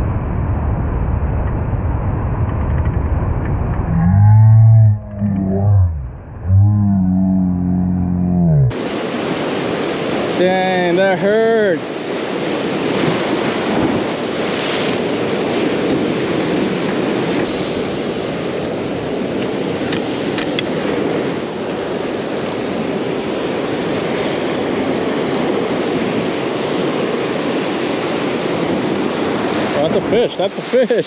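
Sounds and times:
ocean surf breaking on rocks: 0:08.7 - 0:31.0.

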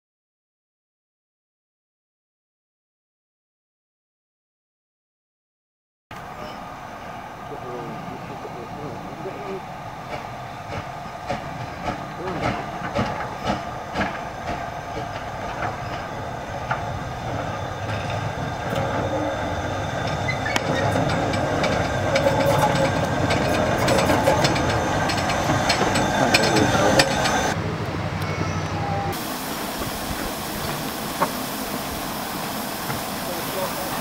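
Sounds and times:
steam locomotive passing: 0:06.1 - 0:34.0
steam hissing: 0:06.2 - 0:27.6, 0:29.0 - 0:34.0
wheels clicking on rail joints: 0:06.2 - 0:34.0.

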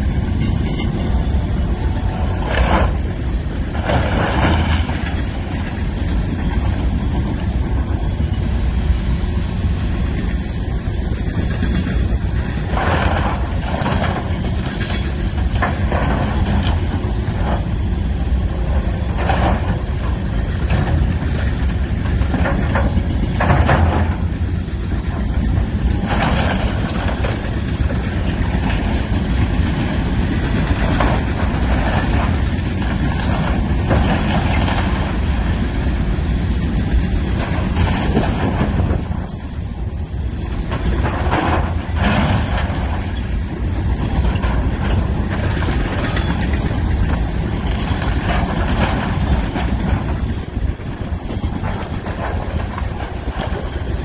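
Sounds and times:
diesel excavator engine under load: 0:00.0 - 0:54.0
splintering timber cracking and crashing: 0:43.8 - 0:53.7.

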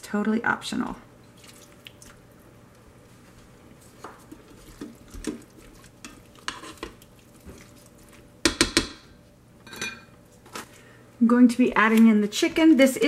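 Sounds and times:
spoon stirring food in pot: 0:03.8 - 0:10.1
spoon knocking on pot: 0:08.4 - 0:09.1.

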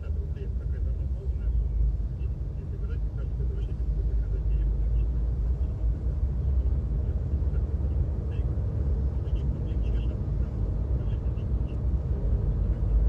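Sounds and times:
car driving rumble: 0:00.0 - 0:13.0.

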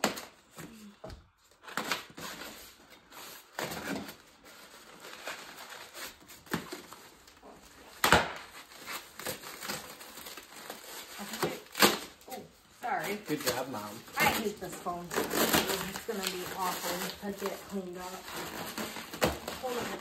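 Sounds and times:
cardboard and wrapping rustling: 0:00.0 - 0:20.0.

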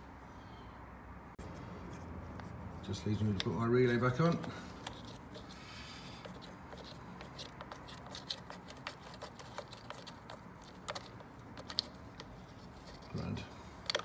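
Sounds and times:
plastic relay clicks and scrapes: 0:06.2 - 0:14.0.

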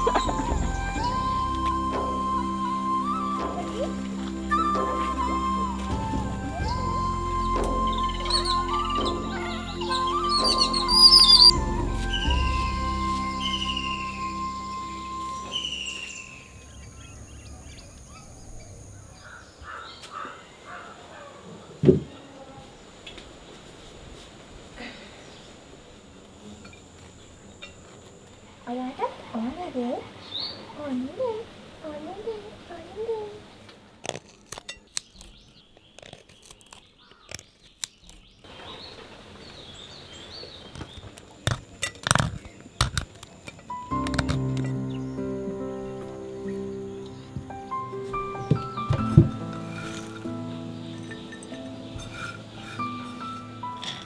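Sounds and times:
bird chirping: 0:00.0 - 0:21.3, 0:42.4 - 0:54.0
faint outdoor ambience: 0:00.0 - 0:54.0.

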